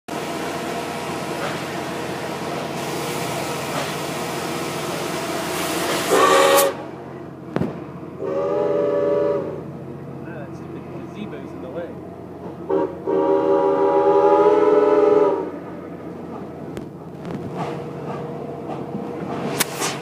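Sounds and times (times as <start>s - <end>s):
moving train rushing noise: 0.1s - 20.0s
steam locomotive whistle blasts: 5.9s - 6.9s, 8.2s - 9.6s, 12.7s - 15.6s.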